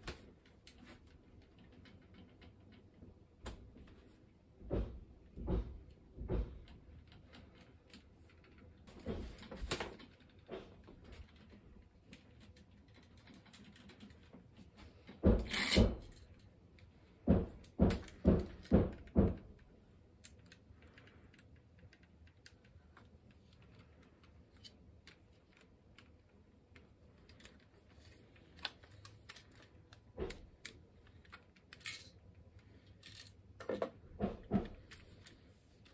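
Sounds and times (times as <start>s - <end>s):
light plastic clicks and rattles: 0.0s - 4.1s, 4.7s - 35.9s
plastic toy mechanism clacking: 11.1s - 14.5s, 15.4s - 16.5s, 18.0s - 33.8s.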